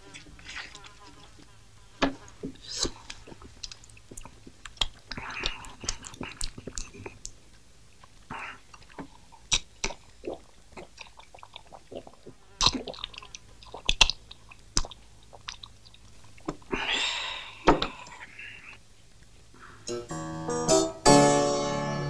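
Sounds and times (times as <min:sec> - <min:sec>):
man chewing and smacking: 0:00.0 - 0:01.5, 0:02.3 - 0:16.7
drinking from a bottle: 0:08.3 - 0:14.2.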